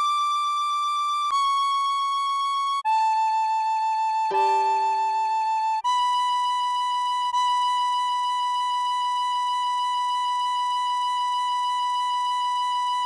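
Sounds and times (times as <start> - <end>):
tin whistle long note: 4.1 - 8.6.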